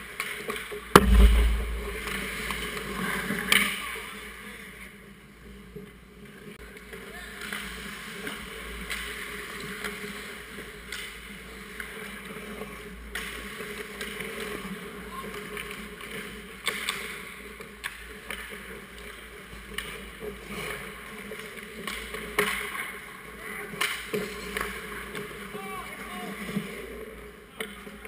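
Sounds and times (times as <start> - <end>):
hockey sticks and puck clacking: 6.8 - 25.6.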